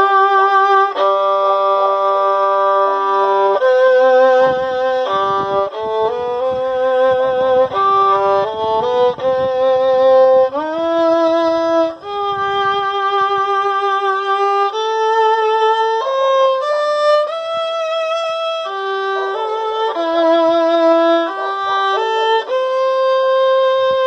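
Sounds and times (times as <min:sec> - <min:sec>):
solo violin: 0:00.0 - 0:24.0.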